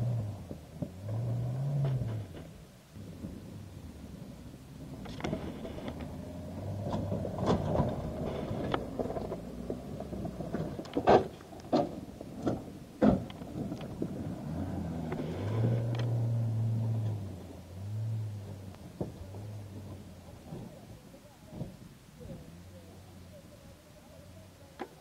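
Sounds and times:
off-road vehicle engine running: 0:00.0 - 0:25.0
vehicle knocks and thuds: 0:04.8 - 0:17.4, 0:18.4 - 0:22.4.

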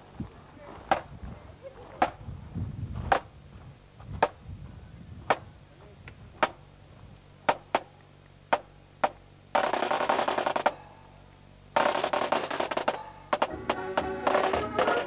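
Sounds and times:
marching drum beating: 0:08.5 - 0:10.8, 0:11.8 - 0:15.0.

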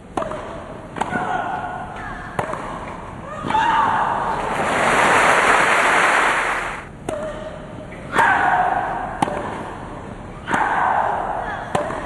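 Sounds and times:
racket striking tennis ball: 0:00.2 - 0:01.3, 0:09.2 - 0:09.6, 0:11.7 - 0:12.0
crowd applause: 0:04.4 - 0:06.9.

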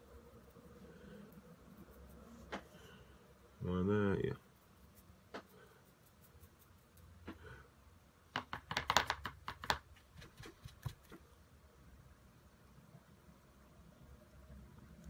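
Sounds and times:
paintbrush scratchy strokes: 0:00.0 - 0:07.2.

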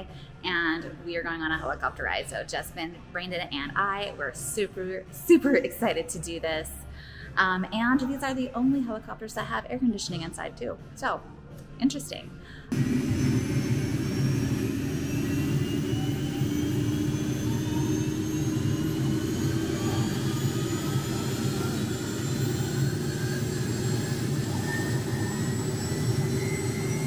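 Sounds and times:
helicopter rotor hum: 0:12.7 - 0:27.0
high whine: 0:12.7 - 0:27.0.

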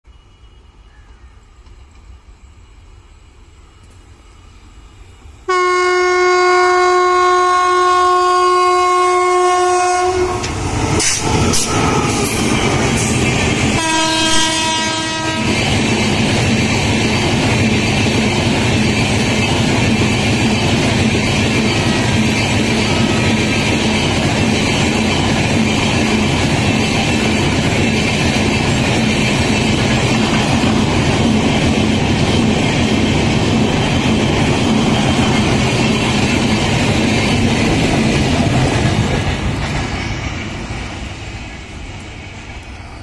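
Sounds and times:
train coaches rolling past: 0:00.1 - 0:43.0
clicking of train wheels: 0:01.1 - 0:02.3, 0:03.8 - 0:04.2, 0:10.3 - 0:43.0
locomotive horn blasts: 0:05.5 - 0:10.5, 0:13.8 - 0:15.6.

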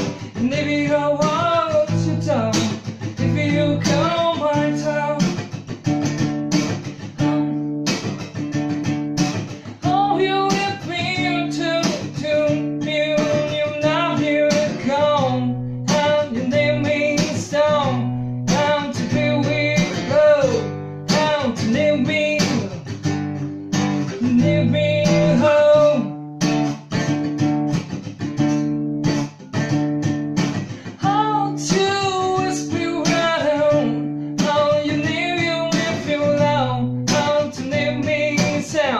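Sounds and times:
man singing folk melody: 0:00.0 - 0:05.9, 0:06.7 - 0:08.5, 0:09.4 - 0:27.1, 0:30.6 - 0:38.9
acoustic guitar strumming: 0:00.0 - 0:38.9.

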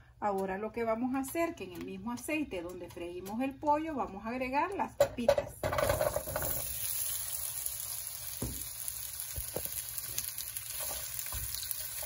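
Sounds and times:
potatoes sizzling in hot oil: 0:05.8 - 0:12.0.

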